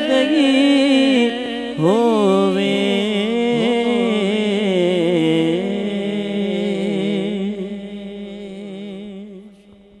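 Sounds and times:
person singing: 0.0 - 7.6.

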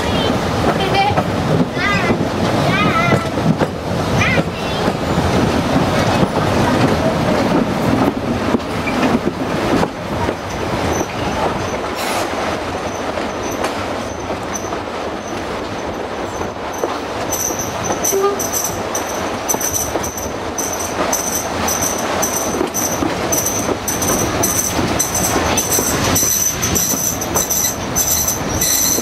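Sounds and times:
rail clicks: 0.0 - 29.0
train rumbling on track: 0.0 - 29.0
train wheels squealing: 10.4 - 29.0.

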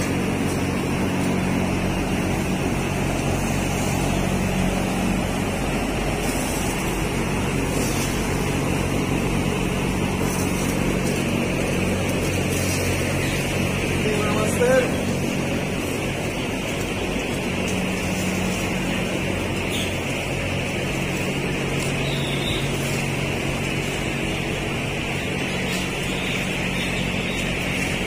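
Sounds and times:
feed pellets pouring into feeders: 0.0 - 28.0
ventilation fans droning: 0.0 - 28.0.

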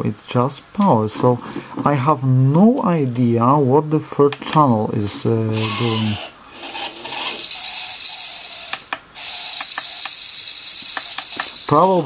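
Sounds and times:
motor spinning rattling gearbox: 5.6 - 12.0
sharp clicks: 8.6 - 10.2.

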